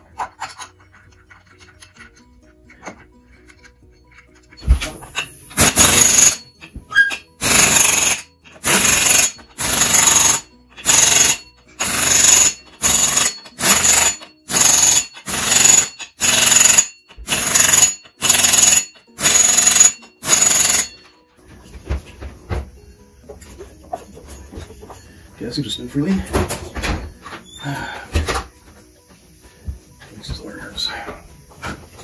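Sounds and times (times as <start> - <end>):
air impact wrench rattling: 4.8 - 21.0.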